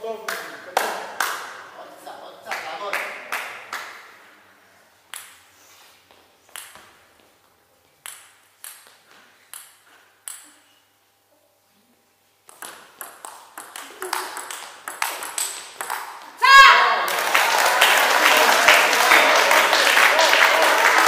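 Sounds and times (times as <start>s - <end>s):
table tennis ball bouncing: 5.1s - 5.4s, 6.5s - 7.0s, 8.0s - 10.7s, 12.4s - 16.4s.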